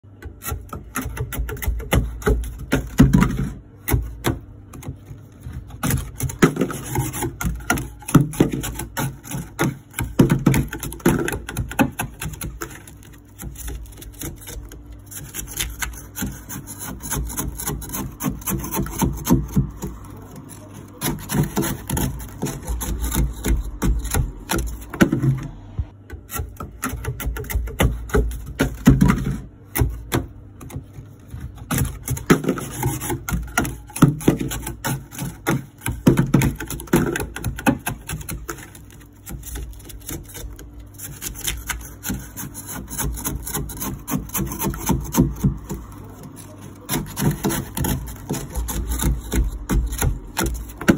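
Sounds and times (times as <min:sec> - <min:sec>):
knife scraping ice: 0:00.2 - 0:25.2, 0:26.2 - 0:50.9.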